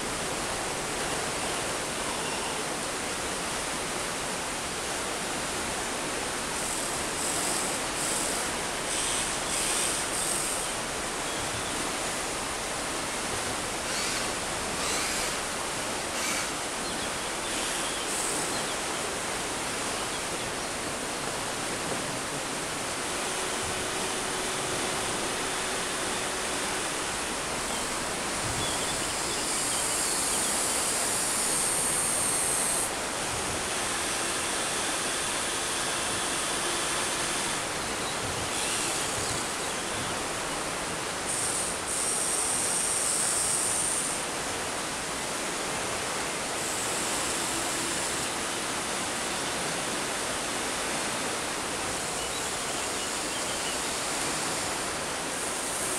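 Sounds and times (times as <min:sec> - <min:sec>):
river water rushing: 0:00.0 - 0:55.9
electric motors whirring: 0:06.6 - 0:12.2, 0:13.8 - 0:16.6, 0:17.2 - 0:44.3.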